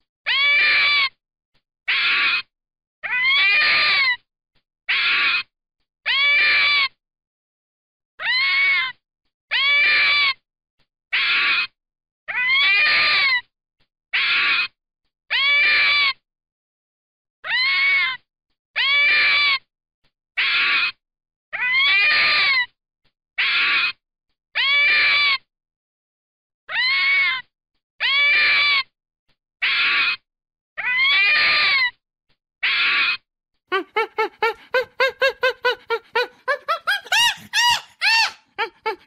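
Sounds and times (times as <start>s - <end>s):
fox whining calls: 33.7s - 39.0s.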